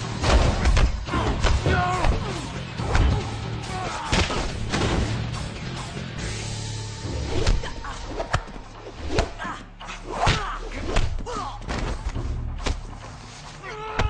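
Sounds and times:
punch and kick impacts: 0.1 - 3.3, 4.0 - 5.3, 8.3 - 9.4, 10.2 - 12.9
fighters grunting: 1.0 - 4.6.

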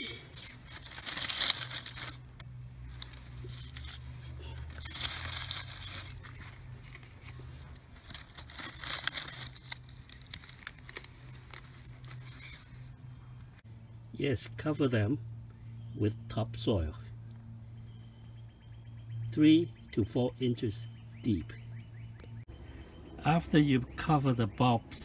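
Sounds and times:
soil and bulb skins rustling: 0.0 - 12.9
steady low hum: 0.0 - 25.0.

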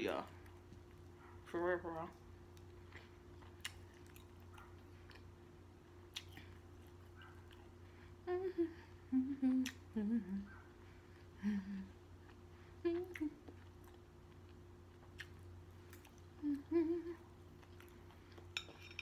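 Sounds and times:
woman humming mm notes: 8.2 - 10.5, 11.4 - 12.0, 12.8 - 13.5, 16.4 - 17.3.

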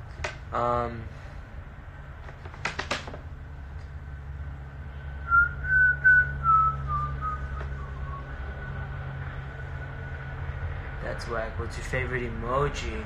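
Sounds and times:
man whistling a tune: 5.2 - 8.8.

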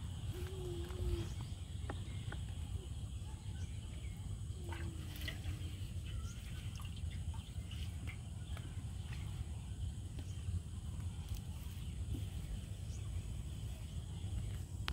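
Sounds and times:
low animal calls: 0.1 - 1.6.

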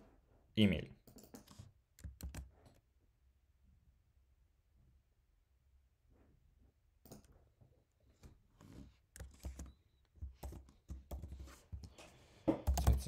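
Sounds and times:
computer keyboard typing: 1.1 - 2.8, 9.2 - 11.9, 12.6 - 13.0.

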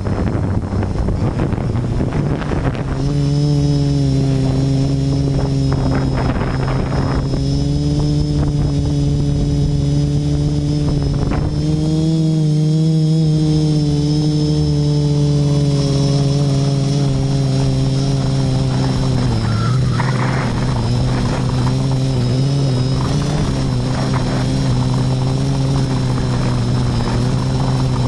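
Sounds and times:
quadcopter motors humming: 0.0 - 28.0
wind noise on microphone: 0.0 - 28.0.

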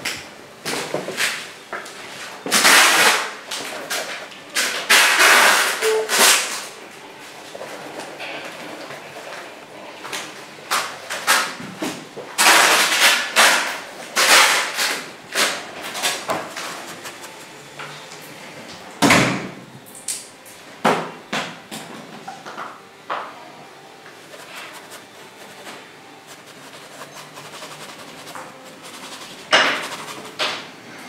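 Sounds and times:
brush scrubbing paint on canvas: 16.0 - 17.7, 24.2 - 30.4.

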